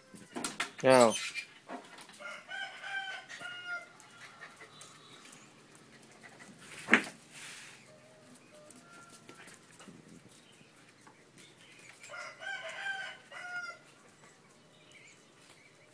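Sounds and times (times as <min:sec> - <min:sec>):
rooster crowing: 0:02.2 - 0:05.2, 0:12.1 - 0:13.8.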